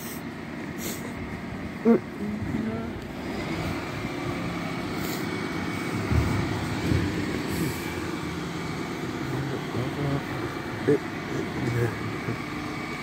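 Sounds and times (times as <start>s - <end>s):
diesel engine running: 0.0s - 13.0s
thin steady whine: 0.0s - 13.0s
low thuds: 6.0s - 7.3s.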